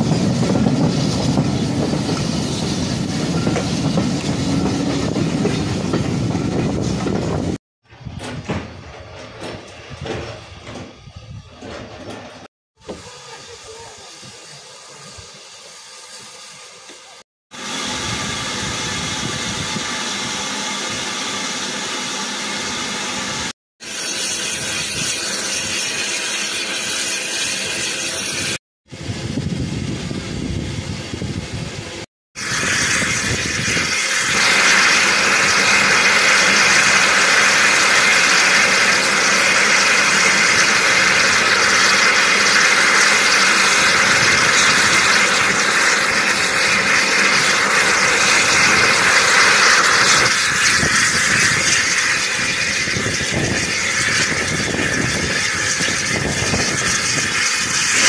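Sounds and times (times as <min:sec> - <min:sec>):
steam hissing: 0:00.0 - 0:07.6, 0:12.8 - 0:58.0.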